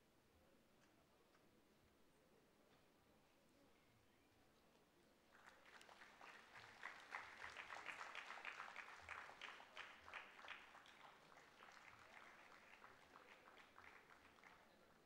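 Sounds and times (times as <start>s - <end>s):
faint audience applause: 5.3s - 15.0s.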